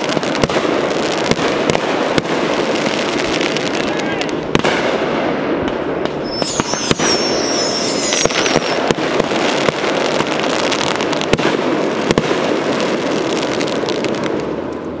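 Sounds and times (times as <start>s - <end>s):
firework bangs: 0.0s - 15.0s
firework pops and crackles: 0.0s - 15.0s
firework whistle: 6.1s - 9.8s.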